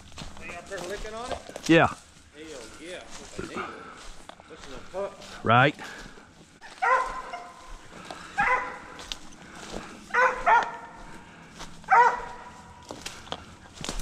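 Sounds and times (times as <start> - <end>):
dog barking: 6.6 - 7.8, 8.4 - 9.0, 10.1 - 11.1, 11.9 - 12.7.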